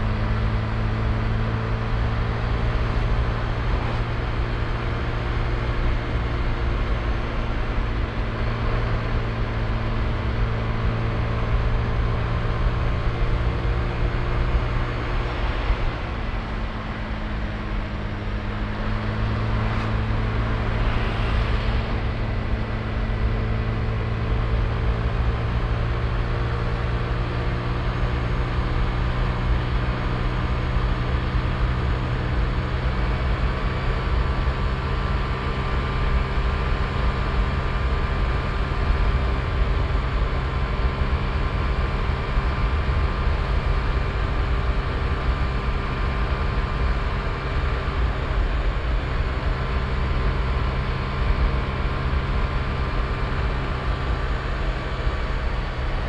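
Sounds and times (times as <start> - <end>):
wind rumbling on microphone: 13.0 - 26.1.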